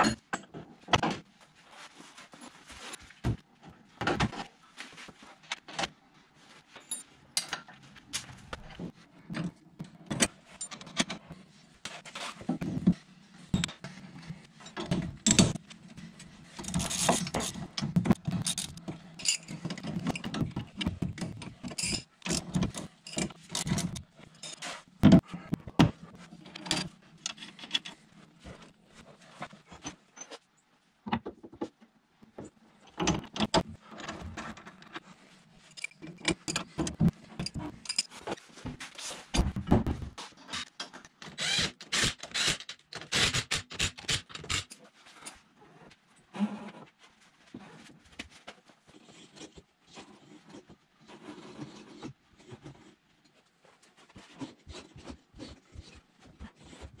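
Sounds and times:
metal tools clinking and clattering: 16.5 - 24.8, 35.6 - 38.5.

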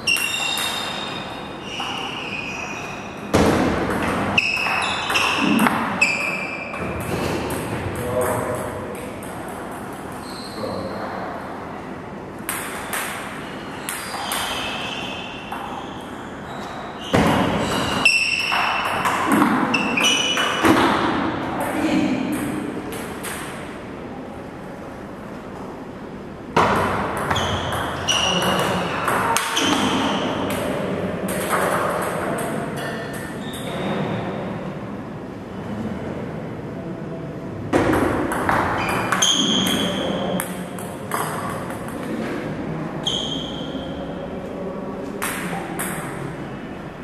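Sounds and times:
table tennis ball hits: 0.0 - 2.3, 3.3 - 10.2, 12.4 - 16.1, 17.1 - 23.8, 26.6 - 34.0, 37.7 - 42.5, 45.2 - 46.3.

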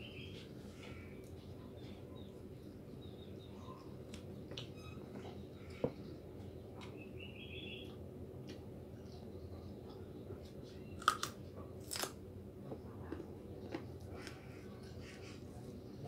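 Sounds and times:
small birds chirping: 0.0 - 11.5
steady low hum: 0.0 - 16.0.

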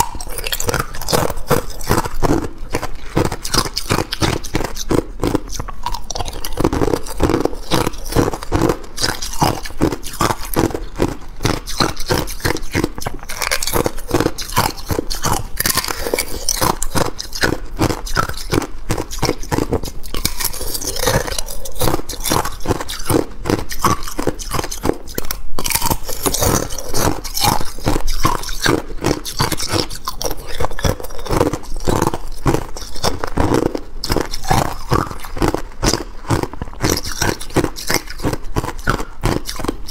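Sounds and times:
thin ice crunching and cracking: 11.7 - 24.7.

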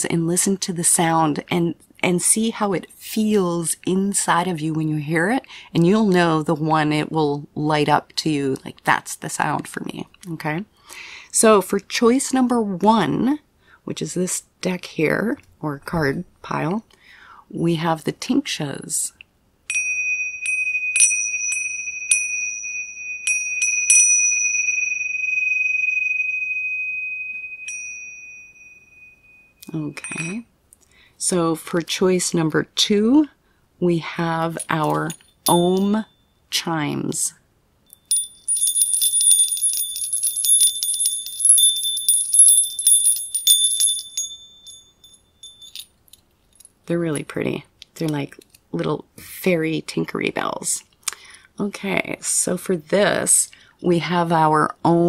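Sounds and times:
small chime bells tinkling: 19.7 - 30.4, 34.5 - 36.5, 37.9 - 46.7
tingsha cymbals ringing: 19.7 - 30.4, 37.9 - 45.9.

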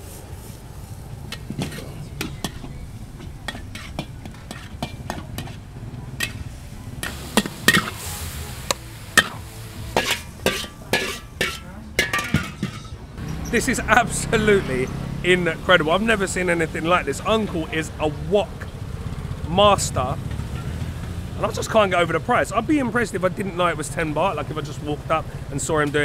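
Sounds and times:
food sizzling: 0.0 - 22.0
metal spatula scraping a wok: 1.1 - 13.8.

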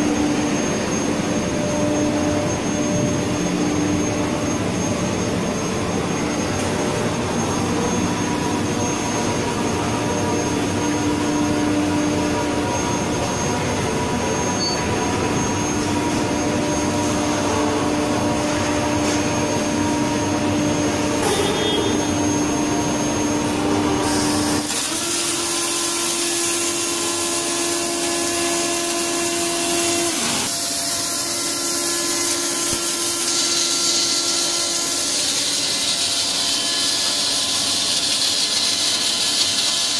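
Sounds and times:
industrial machinery hum: 0.0 - 39.9
welding hiss and crackle: 24.0 - 39.9.

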